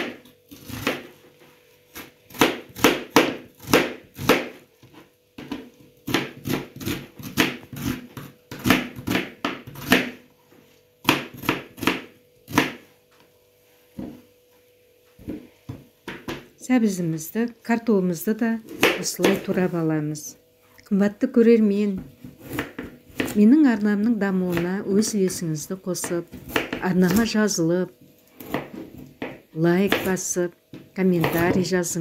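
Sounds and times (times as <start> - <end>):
knife chopping on cutting board: 0.0 - 1.2, 1.9 - 10.2, 11.0 - 12.9, 18.7 - 19.6, 22.0 - 23.4, 26.0 - 27.3, 28.4 - 30.2, 30.8 - 31.7.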